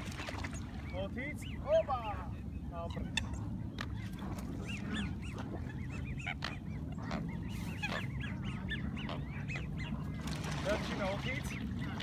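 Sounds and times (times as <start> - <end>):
geese and ducks honking: 0.9 - 12.0.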